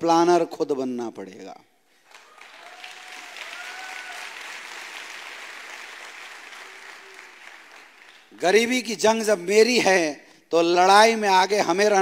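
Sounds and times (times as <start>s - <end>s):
audience applauding: 2.0s - 8.7s.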